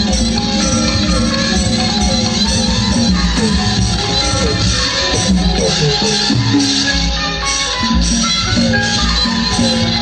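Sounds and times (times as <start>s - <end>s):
steady drum beat: 1.0s - 6.8s.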